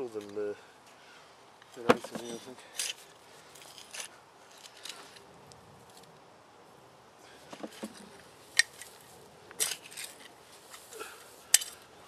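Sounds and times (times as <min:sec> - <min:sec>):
garden fork scraping soil: 0:09.6 - 0:11.8.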